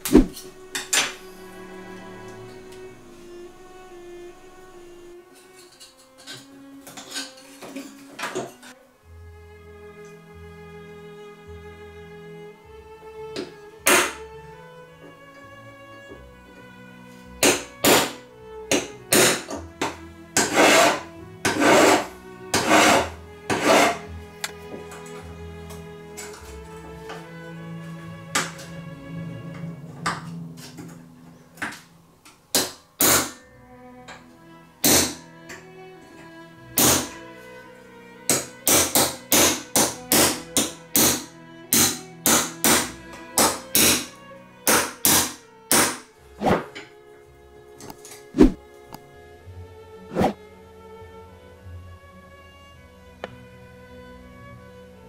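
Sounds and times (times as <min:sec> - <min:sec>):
string music: 0:00.0 - 0:55.0
hammer striking pin punch: 0:13.9 - 0:14.2, 0:17.4 - 0:19.5, 0:32.6 - 0:33.4, 0:34.8 - 0:35.2, 0:41.8 - 0:44.1, 0:44.7 - 0:46.0.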